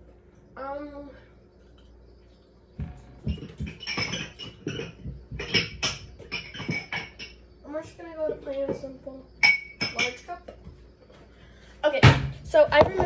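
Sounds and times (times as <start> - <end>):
cups knocking and clicking: 2.8 - 7.4, 9.4 - 10.2.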